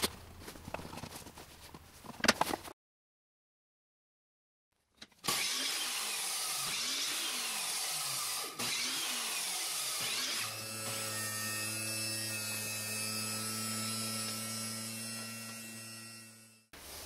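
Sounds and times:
table saw cutting wood: 5.2 - 16.7.

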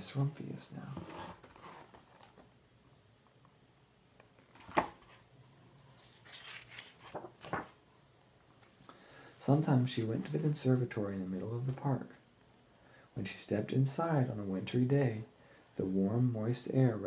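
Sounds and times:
paper page rustling: 5.9 - 7.8.

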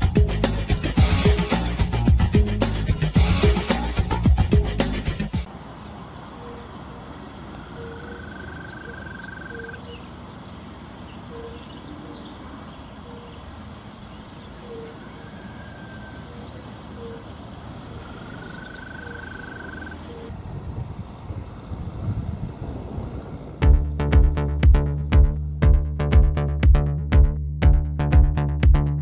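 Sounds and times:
background hiss: 0.0 - 23.6
long rising high calls: 5.5 - 10.4, 11.0 - 20.3.

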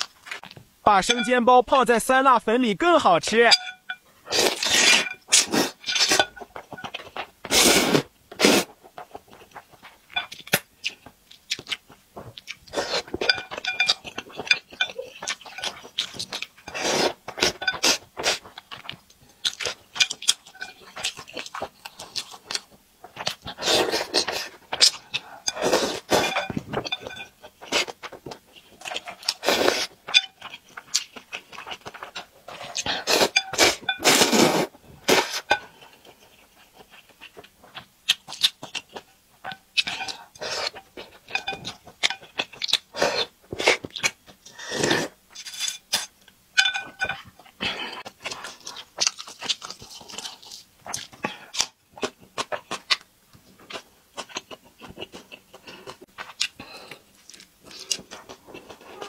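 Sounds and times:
slurping noodles: 4.2 - 6.3, 7.4 - 8.8, 12.6 - 13.2, 14.8 - 18.5, 23.2 - 26.6, 28.8 - 30.0, 31.8 - 36.0, 39.8 - 41.5, 42.9 - 46.1
wet chewing and lip smacks: 9.0 - 16.6, 35.4 - 43.0, 47.2 - 59.0.

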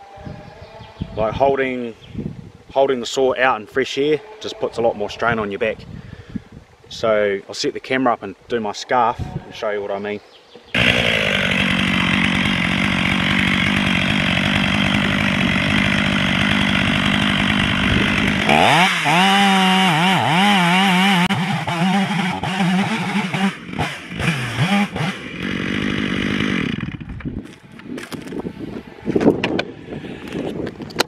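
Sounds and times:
chainsaw cutting wood: 10.7 - 28.4.

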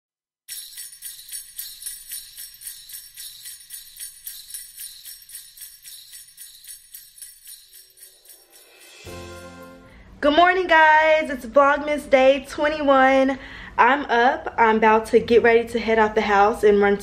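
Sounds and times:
sleigh bells jingling: 0.5 - 10.0.

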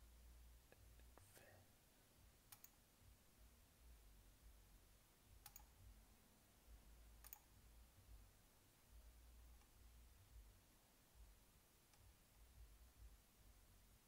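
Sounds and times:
computer mouse clicks: 2.5 - 2.8, 5.4 - 5.8, 7.2 - 7.5.

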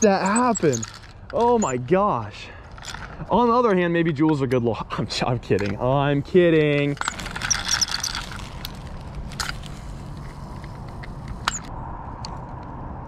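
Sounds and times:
fishing rod and reel handling: 0.0 - 1.8, 2.6 - 4.6, 5.5 - 11.7
reel clicks: 6.6 - 11.7.

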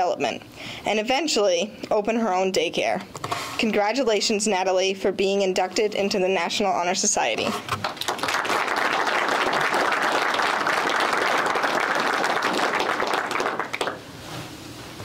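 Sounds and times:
audience applauding: 7.8 - 14.0.

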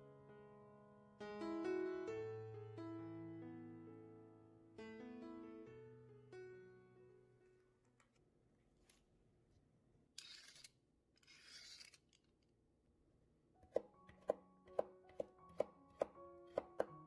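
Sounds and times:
soft piano music: 0.0 - 7.9, 13.6 - 17.0
knife chopping on wooden board: 13.6 - 17.0.

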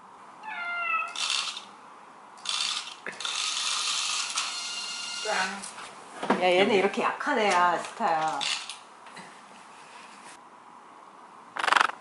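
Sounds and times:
toy motor whirring and clattering: 1.1 - 1.7, 2.4 - 5.4, 8.3 - 8.8.

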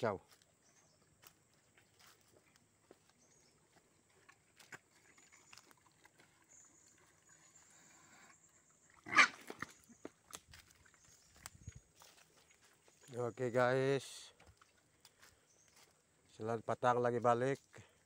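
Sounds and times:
pig calling: 9.0 - 9.7.

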